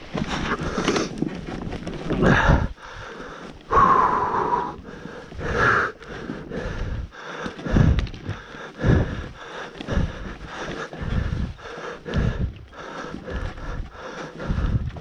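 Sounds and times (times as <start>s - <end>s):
animal snorting and breathing hard: 0.0s - 15.0s.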